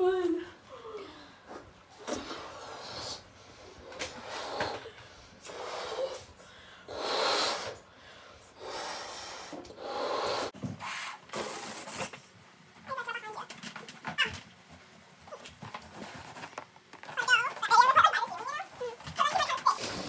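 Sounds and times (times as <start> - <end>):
breathy puffs into balloons: 1.4 - 12.2.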